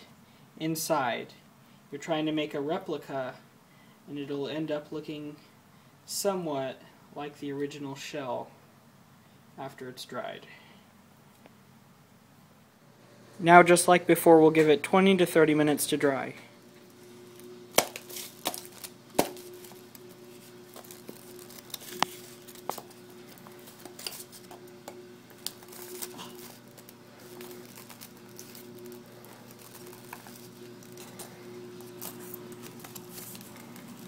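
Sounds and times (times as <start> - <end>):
faint steady hum: 0.0 - 34.0
foil crinkling: 16.8 - 34.0.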